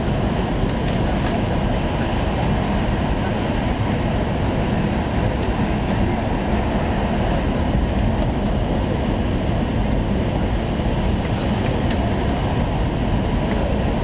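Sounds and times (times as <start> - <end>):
train cabin noise at high speed: 0.0 - 14.0.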